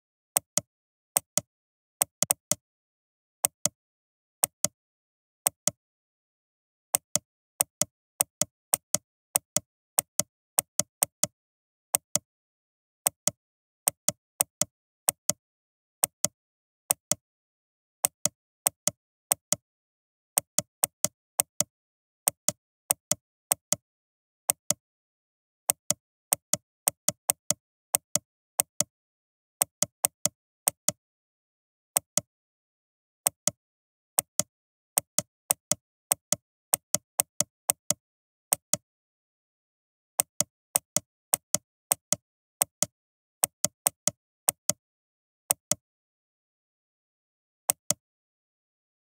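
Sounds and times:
computer mouse clicking: 2.1s - 2.6s, 24.5s - 24.8s, 34.2s - 38.8s, 40.2s - 44.8s, 47.7s - 48.0s.

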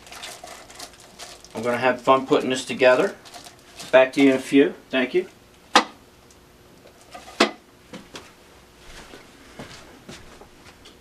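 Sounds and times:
plastic rustles: 0.0s - 4.4s.

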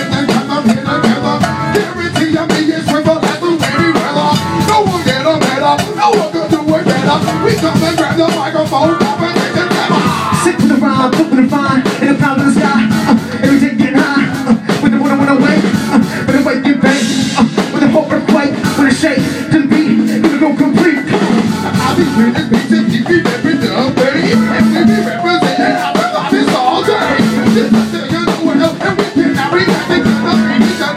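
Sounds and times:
bass line: 0.0s - 30.9s
fast percussive hits: 0.0s - 30.9s.

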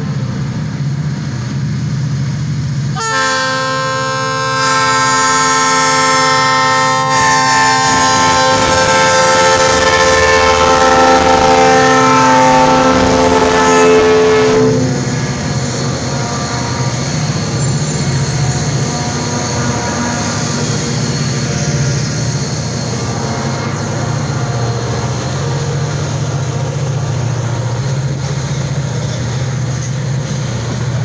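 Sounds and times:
diesel engines rumbling past: 0.0s - 31.0s
locomotive air horn chord: 2.9s - 21.8s.

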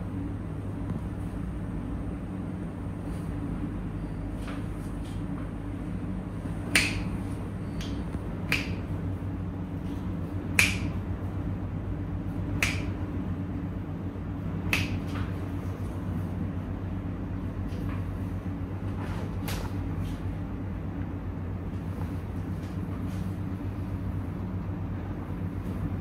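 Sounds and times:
sharp snaps: 6.7s - 7.1s, 7.8s - 8.9s, 10.5s - 11.0s, 12.5s - 13.0s, 14.6s - 15.3s.

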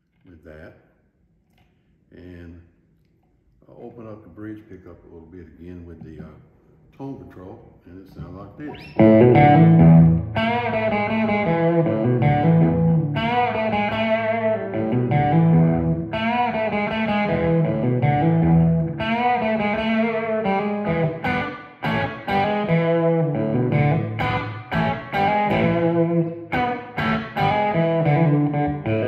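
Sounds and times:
picked electric guitar lines: 8.2s - 29.0s
overdriven electric guitar chords: 8.7s - 29.0s.

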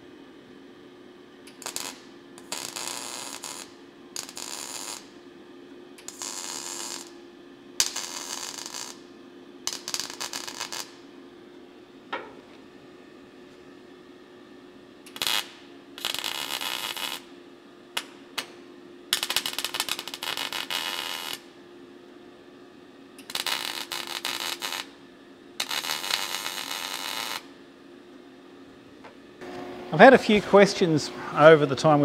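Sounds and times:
steady hum: 0.0s - 32.0s
welding arc crackling: 1.5s - 5.2s, 6.0s - 7.1s, 7.8s - 9.0s, 9.6s - 11.0s, 15.1s - 17.3s, 18.0s - 21.5s, 23.2s - 25.0s, 25.6s - 27.5s.

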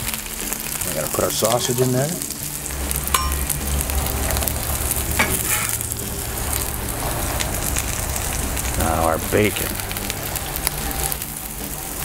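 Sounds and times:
food sizzling on a griddle: 0.0s - 12.0s
metal spatula scraping: 5.2s - 6.0s.

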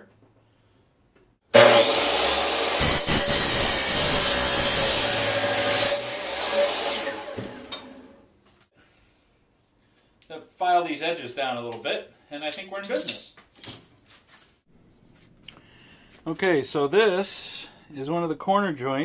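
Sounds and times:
miter saw cutting metal: 1.5s - 8.2s.

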